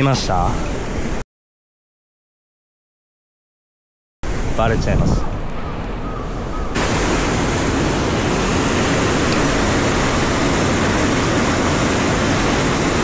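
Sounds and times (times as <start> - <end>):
mountain stream rushing: 6.8 - 13.0.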